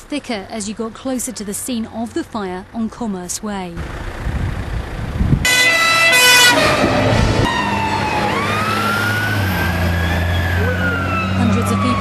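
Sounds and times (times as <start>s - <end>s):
fire engine motor running: 0.1s - 12.0s
fire engine siren wailing: 5.4s - 12.0s.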